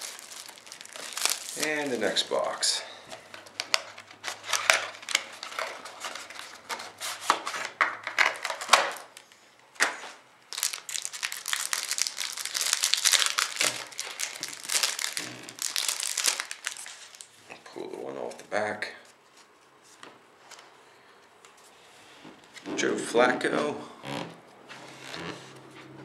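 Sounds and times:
box opening clicks and rustles: 0.0 - 9.2
wrapper crinkling and tearing: 0.0 - 9.2, 10.5 - 17.4.

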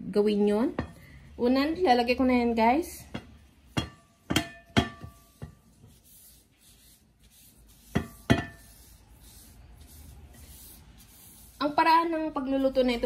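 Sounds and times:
plate knocking against glass bowl: 3.1 - 5.6, 8.0 - 8.6.

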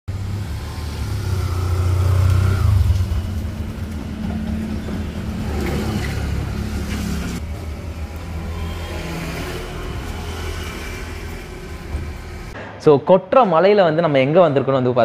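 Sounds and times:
motorcycle engine at low speed: 0.1 - 7.5
vehicle engine running: 0.1 - 12.6.

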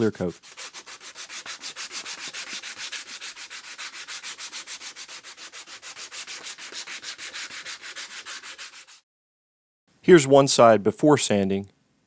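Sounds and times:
sandpaper rasping on handle: 0.0 - 9.0.

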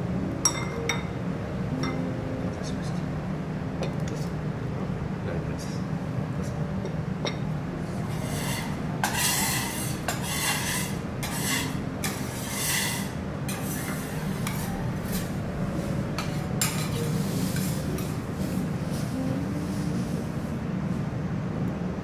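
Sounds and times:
steady low hum: 0.0 - 22.0
spoon scraping ceramic bowl: 8.1 - 15.3.

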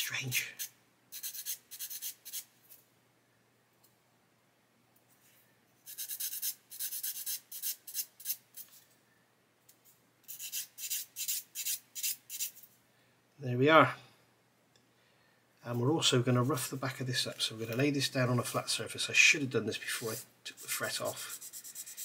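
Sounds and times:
sanding stick scratching metal: 0.6 - 2.5, 5.9 - 8.7, 10.3 - 12.6, 20.0 - 22.0.

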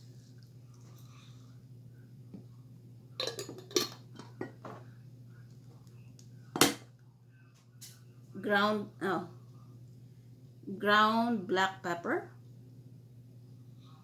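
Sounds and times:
dishes and utensils clinking: 3.2 - 4.8.

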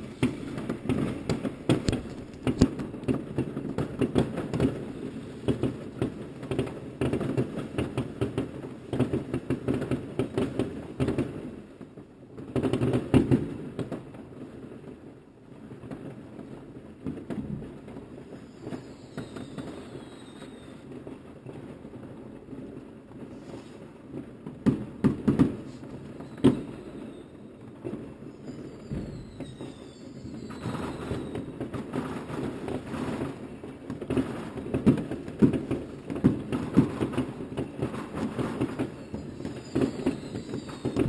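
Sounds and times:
fireworks falling whistles: 0.0 - 11.4, 17.1 - 21.8, 23.2 - 41.0
fireworks bangs: 0.0 - 11.5, 15.8 - 41.0
fireworks crackling and popping: 0.0 - 41.0.

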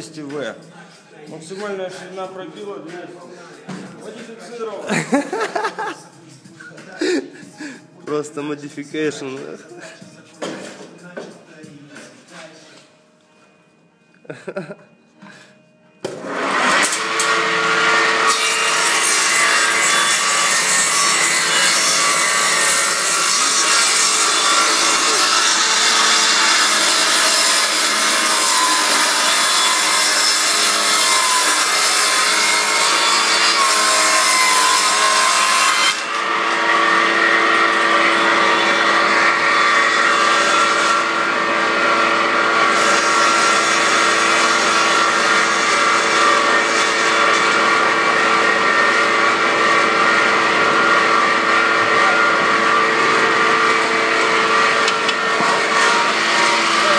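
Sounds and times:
woodworking machine planing a board: 16.0 - 56.9.

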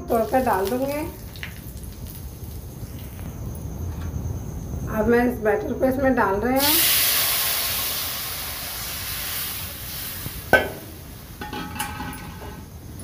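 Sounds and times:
batter sizzling in hot oil: 0.0 - 3.1, 6.6 - 13.0.

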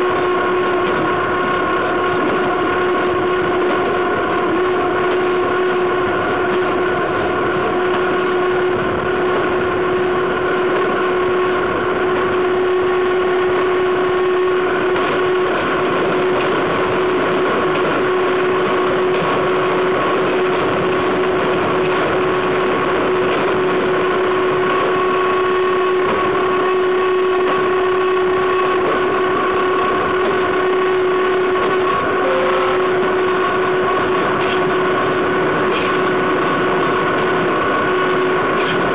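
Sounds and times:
train wheels rolling on rails: 0.0 - 38.9
constant ringing tone: 22.3 - 38.9.

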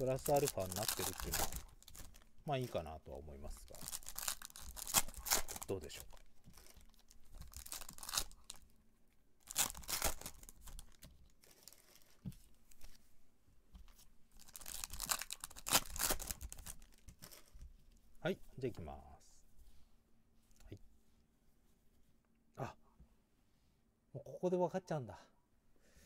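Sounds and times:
foil wrapper tearing: 0.0 - 2.2, 3.7 - 8.6, 9.4 - 12.2, 14.4 - 17.6
foil rustling: 0.0 - 2.8, 3.4 - 8.6.

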